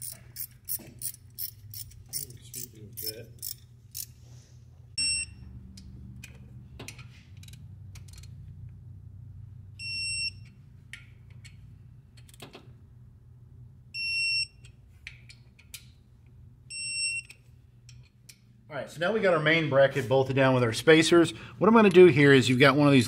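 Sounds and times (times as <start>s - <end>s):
ratchet clicks: 0.0s - 4.2s, 5.7s - 8.4s
torque wrench beeping: 0.0s - 4.2s, 5.0s - 5.5s, 9.8s - 10.6s, 14.0s - 14.8s, 16.7s - 17.4s.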